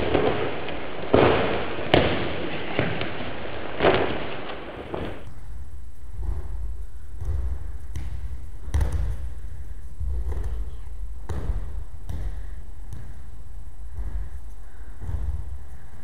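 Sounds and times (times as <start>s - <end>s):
steady low rumble: 0.0s - 16.0s
bodies thudding on mats: 5.0s - 15.9s.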